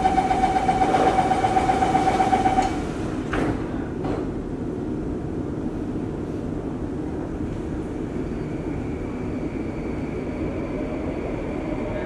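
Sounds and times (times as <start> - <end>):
train humming: 0.0 - 3.4
sliding train doors thudding shut: 2.6 - 4.4.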